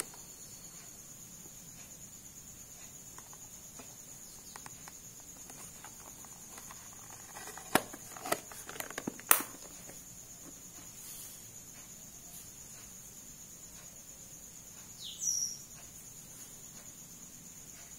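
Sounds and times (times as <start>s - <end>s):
plastic case clicks and knocks: 4.5s - 10.6s
plastic lid snapping shut: 5.4s - 10.0s.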